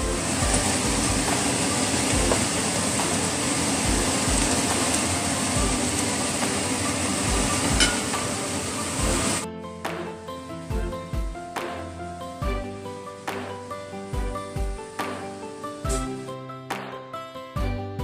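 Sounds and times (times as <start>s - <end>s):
cabbage sizzling in a pan: 0.0s - 16.4s
background music with low beat: 0.0s - 18.0s.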